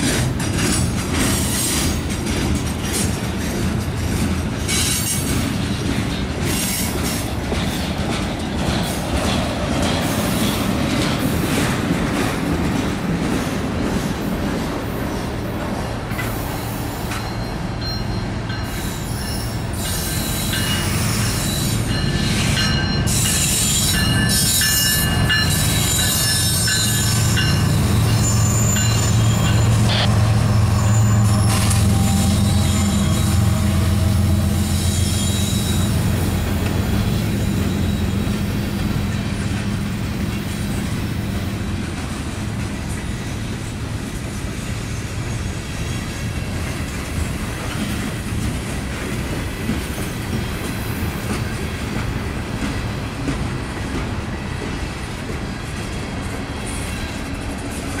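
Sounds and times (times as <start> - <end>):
train wheels rumbling on rail: 0.0 - 58.0
high-pitched wheel squeal: 23.1 - 36.3.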